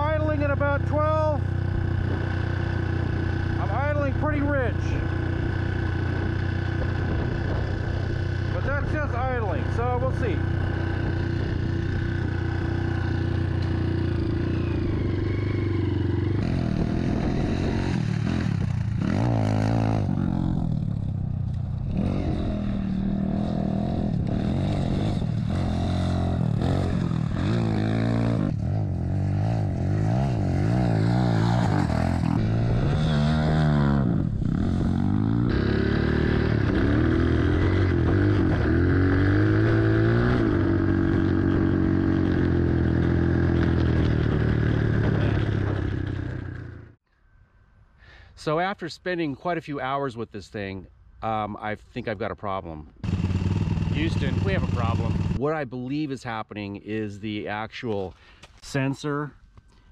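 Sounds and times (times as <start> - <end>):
dirt bike engine revving: 0.0 - 47.0, 53.0 - 55.5.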